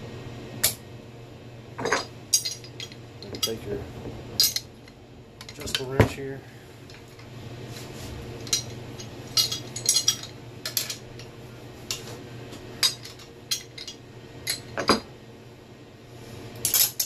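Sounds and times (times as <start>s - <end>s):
metal tools clinking on metal: 1.8s - 3.8s, 4.4s - 6.0s, 8.4s - 11.3s, 12.8s - 15.0s, 16.6s - 17.0s.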